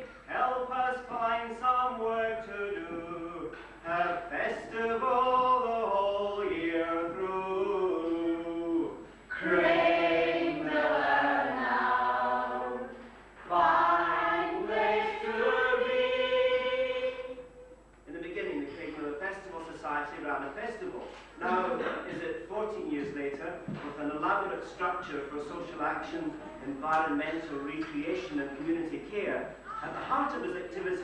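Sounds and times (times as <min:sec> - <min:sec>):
choir singing: 0:09.3 - 0:17.5.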